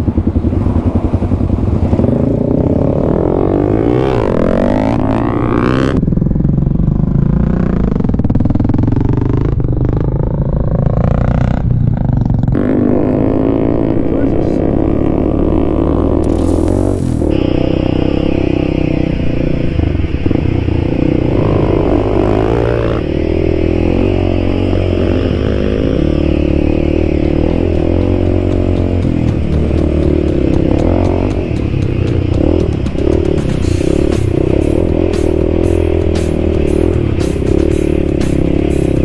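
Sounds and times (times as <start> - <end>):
dirt bike engine revving: 0.0 - 39.0.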